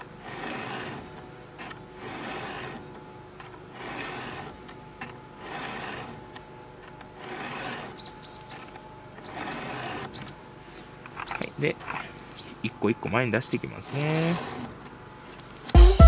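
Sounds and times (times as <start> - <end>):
file rasping on chainsaw chain: 0.0 - 10.3, 13.5 - 14.8.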